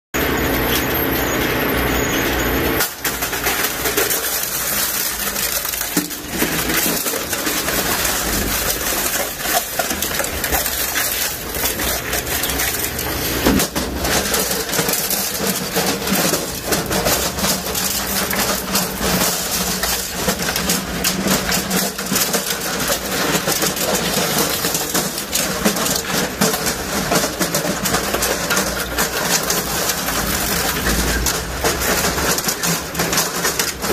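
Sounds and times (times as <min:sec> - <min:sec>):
shredder running: 0:00.2 - 0:33.9
sharp clicks and rattles: 0:02.8 - 0:33.9.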